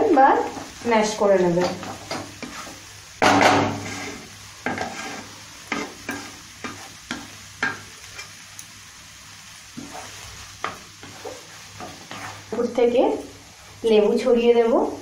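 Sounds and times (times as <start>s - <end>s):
wooden spatula scraping wok: 0.0s - 8.4s, 9.7s - 13.2s
low sizzle: 0.0s - 15.0s.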